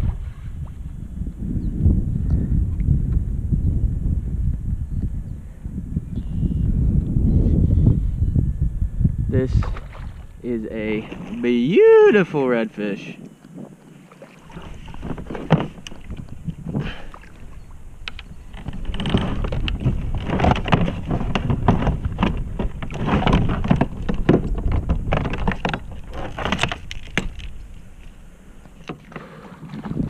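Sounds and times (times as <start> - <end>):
water splashing and sloshing: 9.5 - 30.0.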